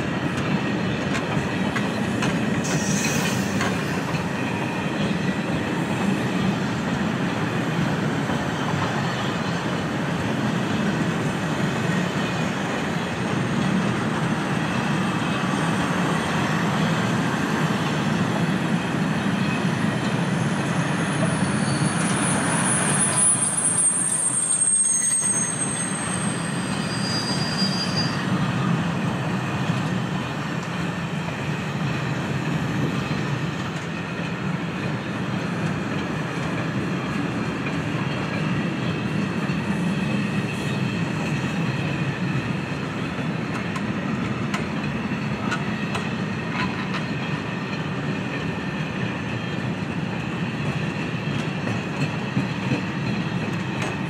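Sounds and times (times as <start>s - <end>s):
freight train rumbling on rails: 0.0s - 54.0s
wheel squeals: 19.4s - 28.4s.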